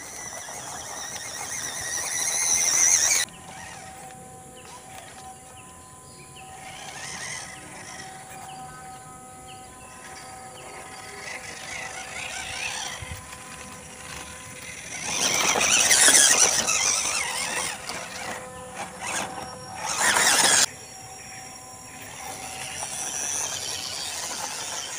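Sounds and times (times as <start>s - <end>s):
toy truck electric motor whining: 0.0s - 5.7s, 6.4s - 24.9s
crawling over dry leaves: 6.6s - 20.7s.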